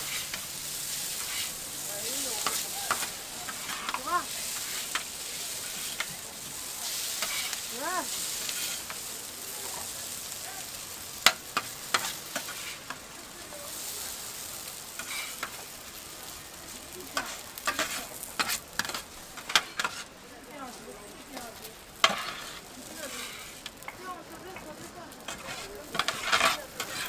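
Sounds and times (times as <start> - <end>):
metal scraper on griddle: 0.0 - 6.1, 6.8 - 9.0, 11.2 - 13.0, 14.9 - 15.7, 17.2 - 20.1, 22.0 - 23.8, 25.2 - 27.0
noodles sizzling on a griddle: 0.0 - 27.0.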